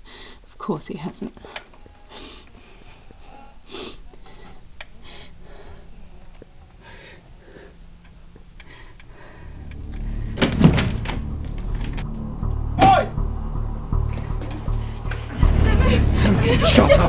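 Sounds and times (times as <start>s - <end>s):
low drone: 1.8s - 17.0s
door opening: 9.6s - 13.0s.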